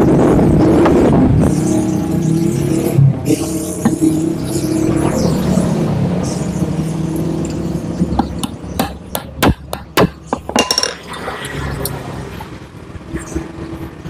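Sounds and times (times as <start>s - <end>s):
metal tool clinking on engine: 10.4s - 11.1s.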